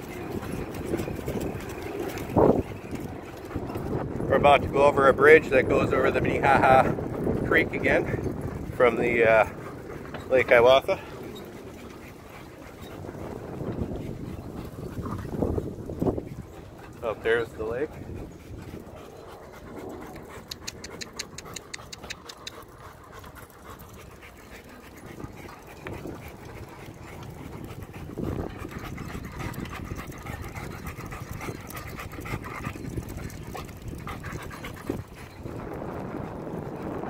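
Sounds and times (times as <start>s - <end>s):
dog panting: 0.0s - 37.0s
rapid ticks: 19.6s - 35.2s.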